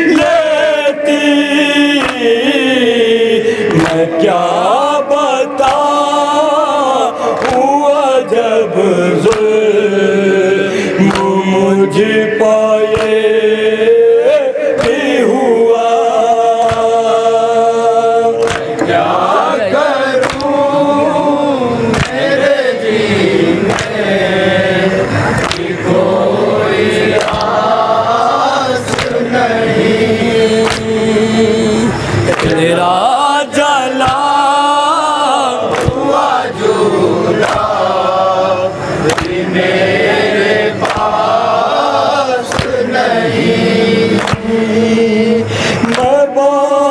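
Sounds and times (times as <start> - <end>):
man chanting into a microphone: 0.0 - 25.9, 26.6 - 46.9
group of men chanting: 0.0 - 46.9
chest-beating slaps: 9.3 - 9.5, 12.9 - 13.2, 14.8 - 15.1, 18.4 - 19.0, 20.2 - 20.6, 21.9 - 22.3, 23.7 - 24.0, 25.3 - 25.8, 27.1 - 27.6, 28.9 - 29.2, 30.6 - 31.0, 32.2 - 32.6, 35.7 - 36.1, 37.4 - 37.9, 39.0 - 39.6, 40.8 - 41.3, 42.5 - 42.9, 44.2 - 44.5, 45.8 - 46.2.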